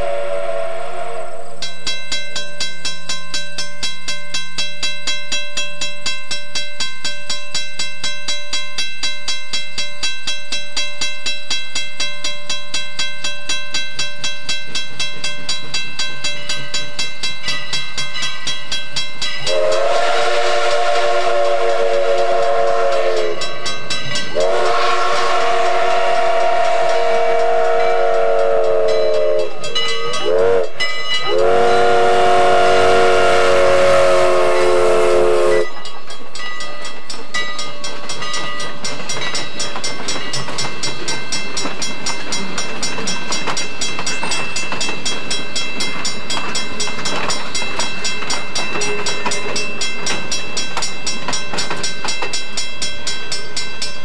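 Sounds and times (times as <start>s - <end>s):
steam whistle chord: 0.0s - 1.7s, 19.5s - 23.6s, 24.3s - 35.8s
rhythmic running of train: 0.0s - 54.0s.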